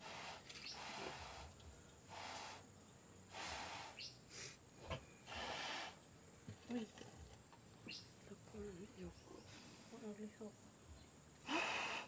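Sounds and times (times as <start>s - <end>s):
faint puffs of breath: 0.0s - 2.7s, 3.3s - 6.0s, 11.4s - 12.0s.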